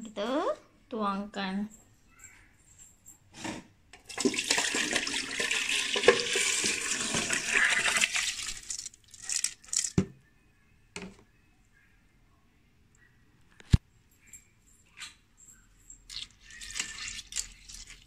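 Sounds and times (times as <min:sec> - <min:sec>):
wet rice pouring and splashing: 0:04.1 - 0:09.9, 0:16.1 - 0:18.0.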